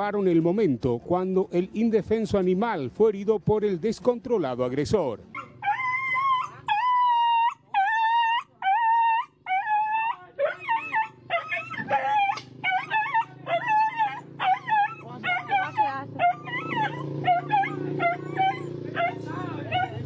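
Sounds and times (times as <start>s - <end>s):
dog yelping: 5.3s - 20.0s
dog howling: 5.4s - 20.0s.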